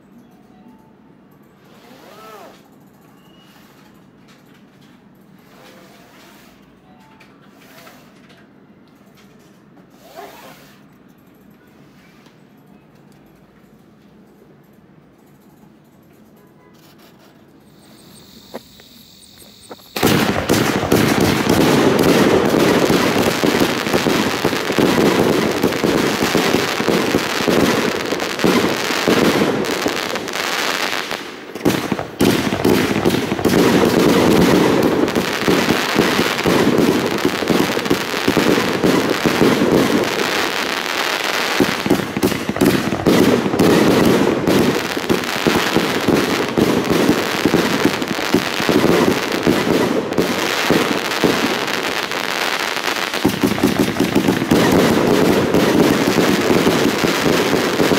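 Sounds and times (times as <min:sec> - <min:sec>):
fireworks aerial bursts: 0:16.8 - 0:57.9
fireworks launch shots: 0:17.7 - 0:57.9.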